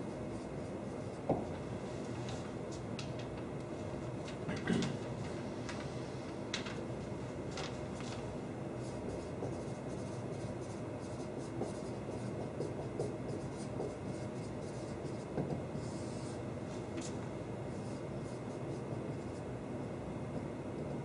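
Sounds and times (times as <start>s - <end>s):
steady background hum: 0.0s - 21.0s
marker writing on whiteboard: 8.8s - 16.4s, 17.0s - 19.5s.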